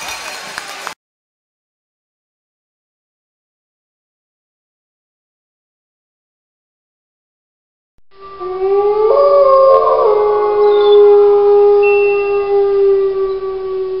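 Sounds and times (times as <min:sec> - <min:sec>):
wolves howling: 0:08.2 - 0:14.0.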